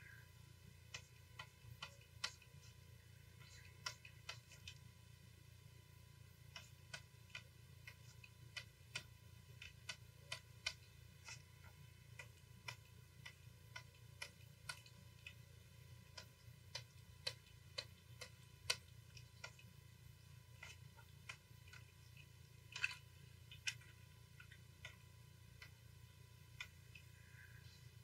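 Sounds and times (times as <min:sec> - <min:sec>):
low steady hum: 0:00.0 - 0:28.0
faint mouse clicks: 0:00.8 - 0:04.9.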